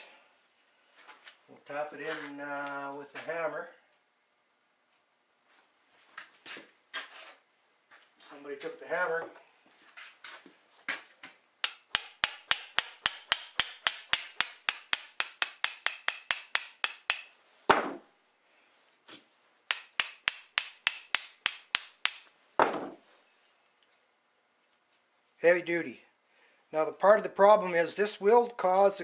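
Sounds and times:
hammer tapping metal: 0:11.6 - 0:17.3, 0:19.7 - 0:22.3
dull thud: 0:22.6 - 0:23.0.

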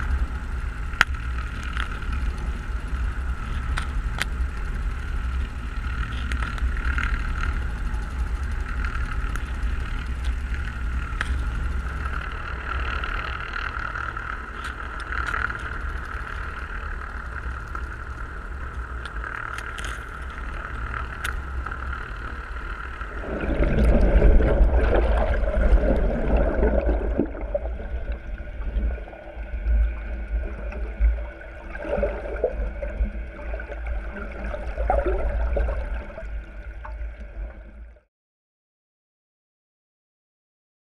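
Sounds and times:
constant higher hum: 0:00.0 - 0:38.1
underwater low rumble: 0:00.0 - 0:38.1
rushing water noise: 0:22.8 - 0:37.6.

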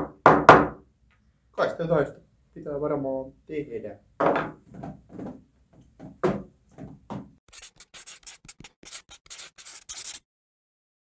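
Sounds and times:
pen scratching on paper: 0:07.5 - 0:10.2.

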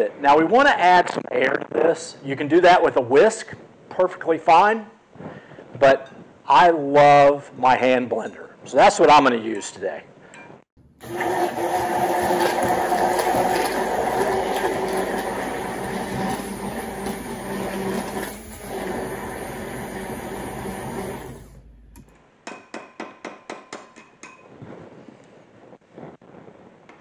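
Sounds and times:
electric hand blender running: 0:11.0 - 0:21.6.

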